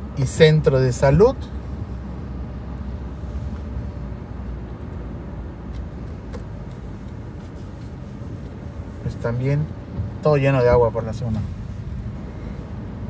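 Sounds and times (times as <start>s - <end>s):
car engine and road noise: 0.0s - 13.0s.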